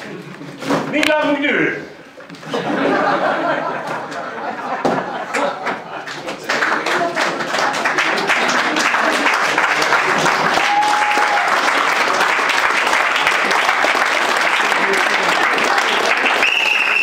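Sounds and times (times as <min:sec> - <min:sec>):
audience applauding: 0:05.2 - 0:17.0.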